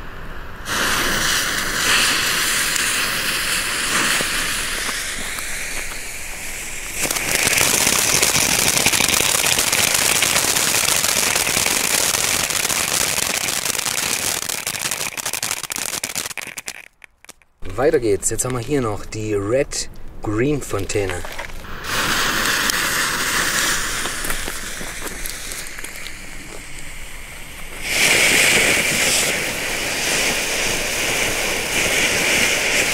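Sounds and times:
firework fountain hissing and crackling: 0.0 - 17.4, 21.0 - 32.9.

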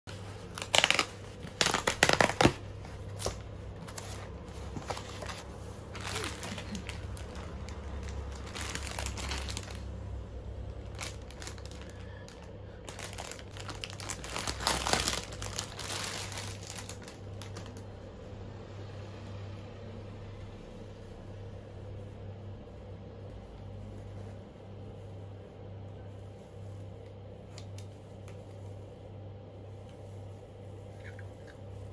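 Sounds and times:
plastic bag crinkling: 0.1 - 18.0
low steady hum: 0.1 - 31.9
cardboard tearing: 0.4 - 7.4, 12.9 - 17.1.

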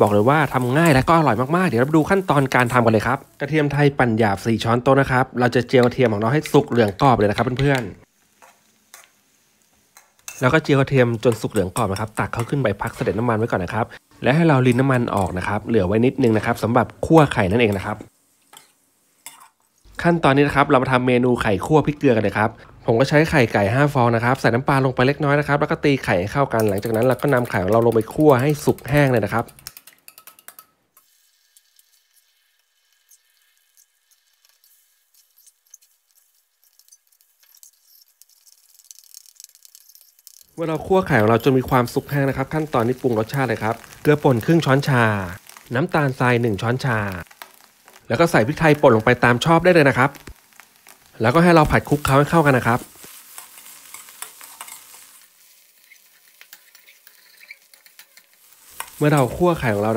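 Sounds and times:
eggs sizzling in a pan: 0.0 - 59.9
metal spatula scraping a pan: 31.1 - 43.9, 51.8 - 59.9
metal ladle scraping pan: 52.9 - 59.8.

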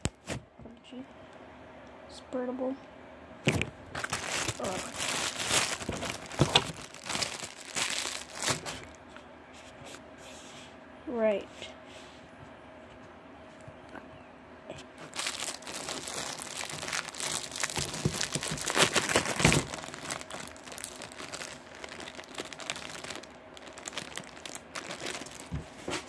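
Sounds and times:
slime crackling and popping: 3.5 - 8.8, 15.0 - 25.6.

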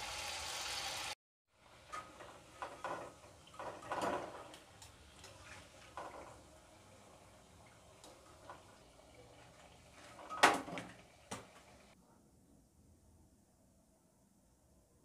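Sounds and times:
deep-frying sizzle: 0.0 - 12.0.

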